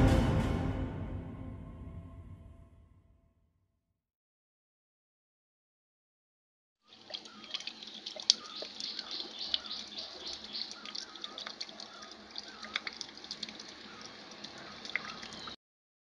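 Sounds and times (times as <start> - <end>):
water trickling and splashing: 6.8 - 15.6
water drips and plinks: 6.9 - 15.6.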